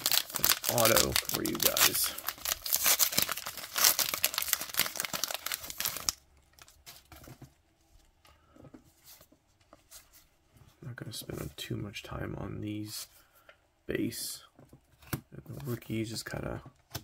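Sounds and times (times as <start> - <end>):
wrapper tearing and crinkling: 0.0 - 6.8.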